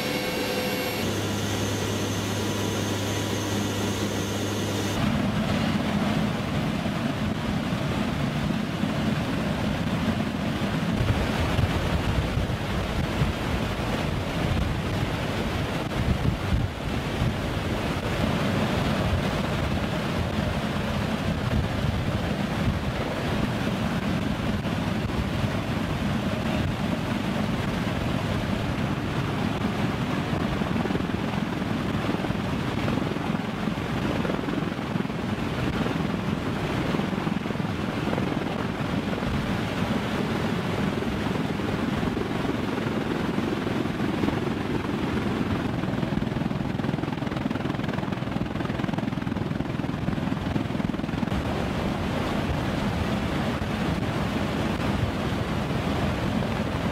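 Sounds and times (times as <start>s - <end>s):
aircraft engines droning: 0.0s - 11.0s
helicopter rotors: 0.0s - 56.9s.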